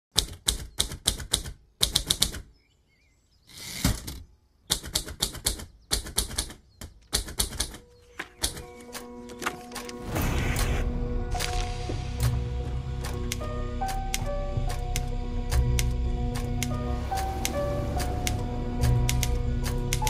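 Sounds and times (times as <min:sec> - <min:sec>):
typewriter keys striking: 0:04.7 - 0:07.8.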